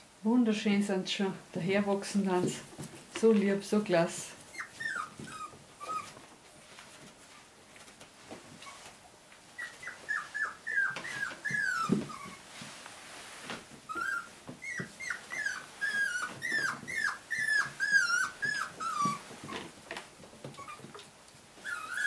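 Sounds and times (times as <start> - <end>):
puppy whining: 4.4 - 6.4, 8.6 - 12.6, 13.8 - 22.0.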